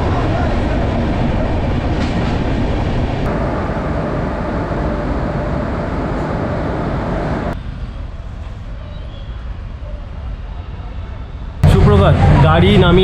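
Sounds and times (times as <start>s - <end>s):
road traffic: 0.0s - 8.8s, 9.4s - 13.0s
passenger train rushing rumble: 0.0s - 13.0s.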